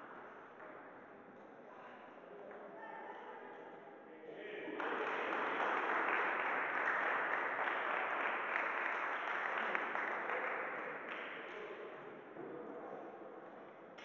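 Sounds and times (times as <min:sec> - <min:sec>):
audience applauding: 0:04.8 - 0:11.3.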